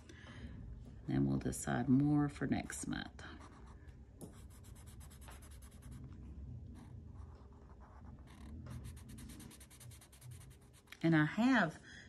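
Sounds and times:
low background rumble: 0.0s - 12.0s
pen scratching on paper: 3.4s - 6.1s, 6.8s - 10.9s.

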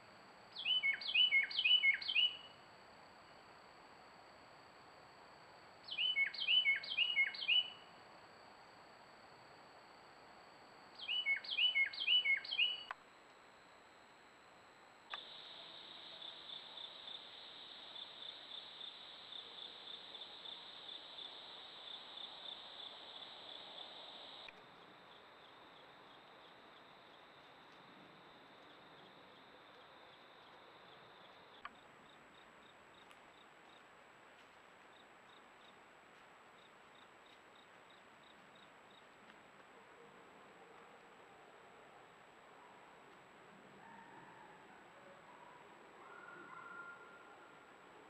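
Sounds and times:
insects chirping: 0.0s - 39.8s
click: 12.9s - 13.4s, 15.1s - 15.3s, 24.4s - 24.7s.

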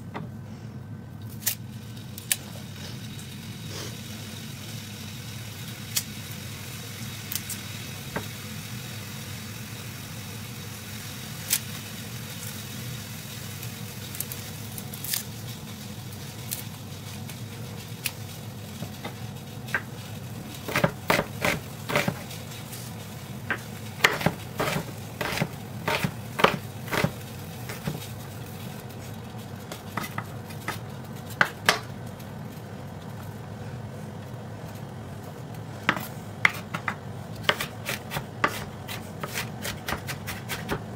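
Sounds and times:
steady low hum: 12.0s - 40.9s
knife chopping on wooden board: 20.6s - 22.3s, 23.5s - 28.0s, 29.9s - 30.8s, 35.9s - 40.9s.

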